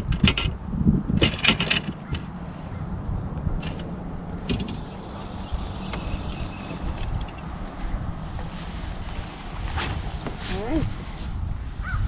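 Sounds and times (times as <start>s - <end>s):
sharp clicks and rattles: 0.0s - 0.6s, 1.2s - 2.4s, 3.0s - 7.7s
wind on microphone: 0.0s - 12.0s.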